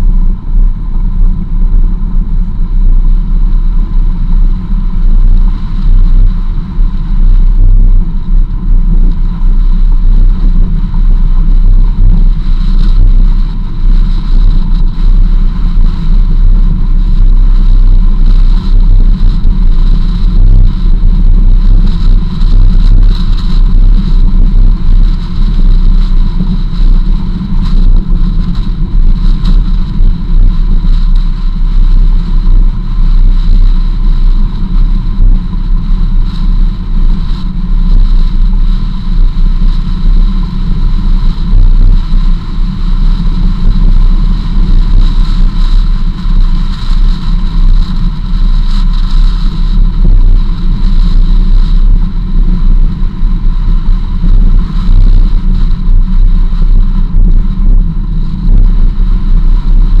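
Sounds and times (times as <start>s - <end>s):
faint thin whine: 0.0s - 60.0s.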